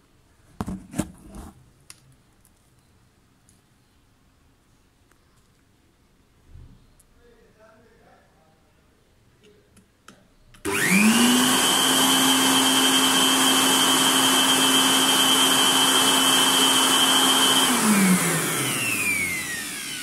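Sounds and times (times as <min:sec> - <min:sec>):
electric air blower whining: 0:10.6 - 0:20.0.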